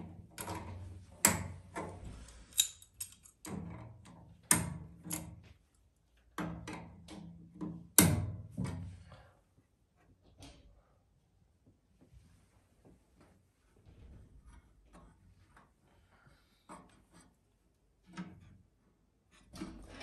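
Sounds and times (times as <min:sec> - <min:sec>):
pliers clicking on metal fitting: 0:02.5 - 0:03.4.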